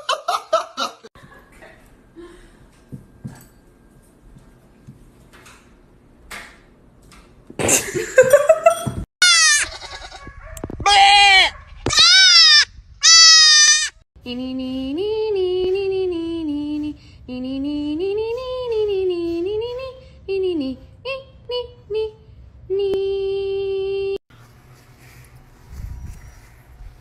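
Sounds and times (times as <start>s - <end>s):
goat kid bleating: 9.2s - 14.0s
cat meowing: 10.9s - 13.9s.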